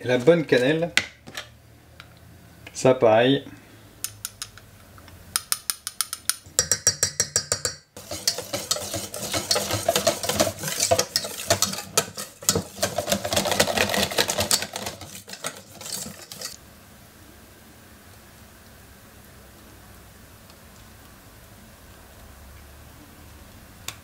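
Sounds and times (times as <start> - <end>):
wire whisk clinking on metal bowl: 5.6 - 16.6
shaker jar rattling: 6.6 - 16.6.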